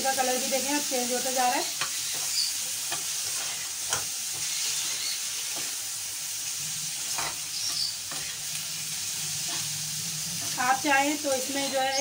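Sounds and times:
chicken sizzling in hot oil: 0.0 - 12.0
scraping in a pan: 1.8 - 5.8, 6.8 - 11.9.

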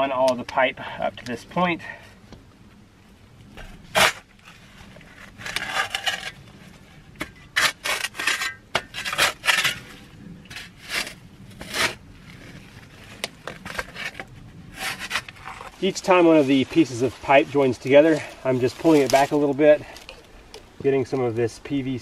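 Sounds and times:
shovel scraping dirt and leaves: 3.6 - 20.1.

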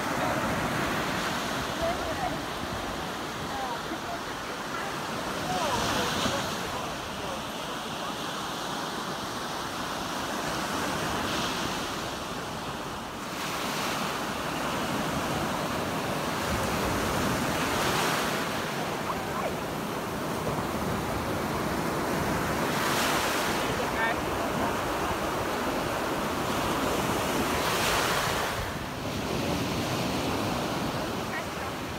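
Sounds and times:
small waves breaking on beach: 0.0 - 31.9.

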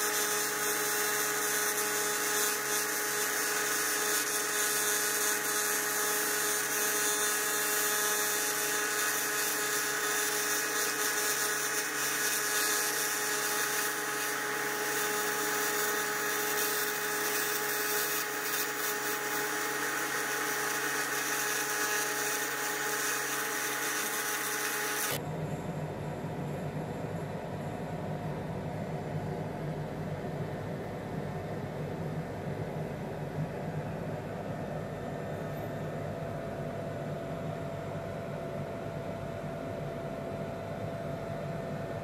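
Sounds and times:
welding arc buzzing: 0.0 - 25.2.

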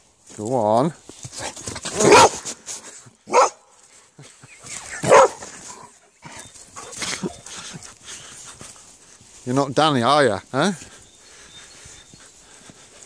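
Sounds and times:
dog barking: 2.0 - 2.4, 3.3 - 3.6, 5.0 - 5.5.

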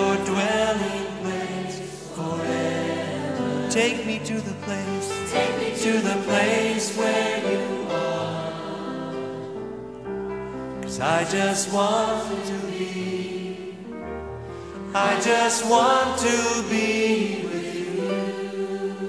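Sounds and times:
group singing worship song: 0.0 - 9.6, 10.8 - 13.9, 14.9 - 19.0.

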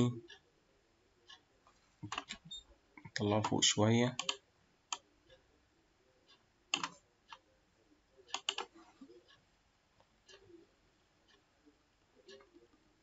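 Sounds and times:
computer mouse clicks: 2.0 - 3.6, 4.2 - 5.0, 6.3 - 7.4, 8.3 - 9.4.

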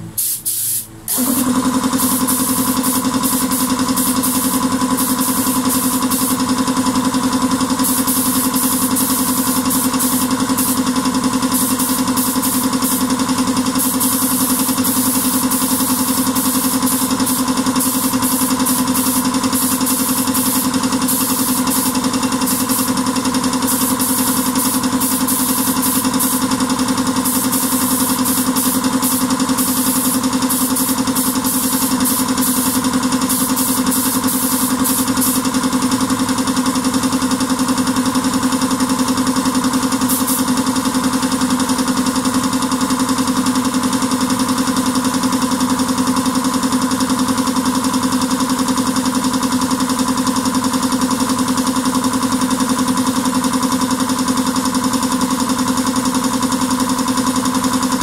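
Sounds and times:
steady machine hum: 0.0 - 41.6
compressed-air spray gun hissing: 0.0 - 41.9.

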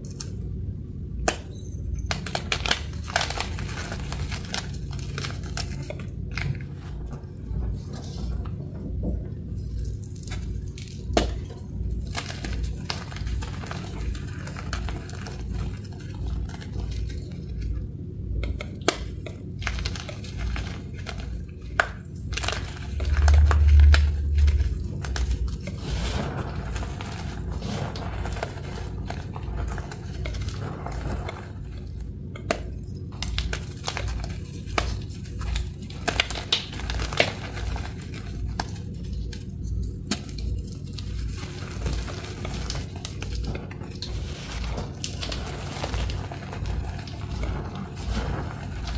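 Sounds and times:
chalk powder crunching: 22.3 - 31.9
deep low rumble: 22.6 - 32.2, 43.4 - 48.9.

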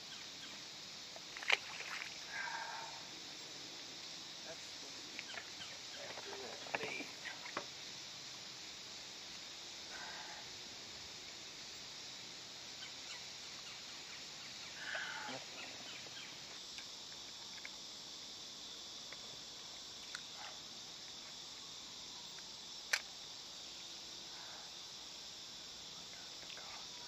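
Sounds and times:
insects chorus hiss: 0.0 - 27.0
sharp click: 22.9 - 23.1.

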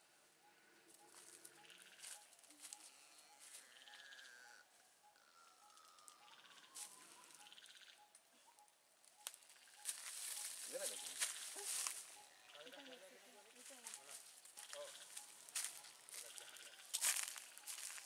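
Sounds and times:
faint falling calls: 0.4 - 18.0.

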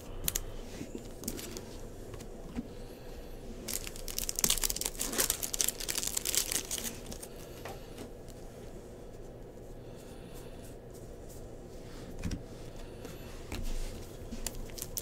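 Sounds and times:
foil wrapper crinkling: 3.7 - 7.4, 14.3 - 15.0.

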